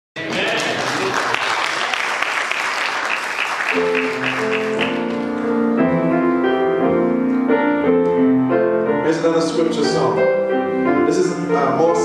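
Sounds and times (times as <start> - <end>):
applause: 0.2 - 5.4
piano playing held chords: 3.6 - 12.0.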